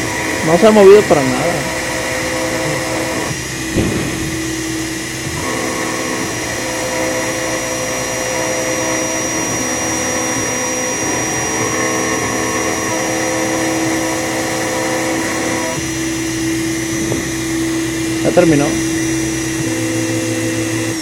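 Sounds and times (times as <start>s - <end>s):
milling machine motor whining: 0.0s - 21.0s
brief thump: 3.7s - 4.5s.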